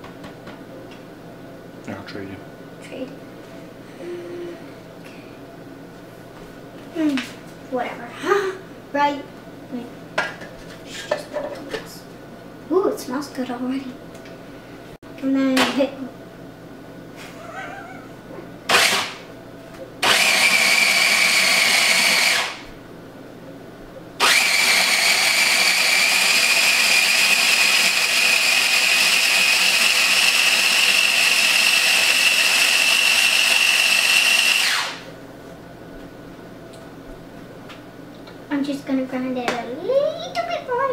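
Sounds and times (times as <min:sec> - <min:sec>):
food processor motor whirring: 0:18.7 - 0:19.2, 0:20.0 - 0:22.6, 0:24.2 - 0:35.0.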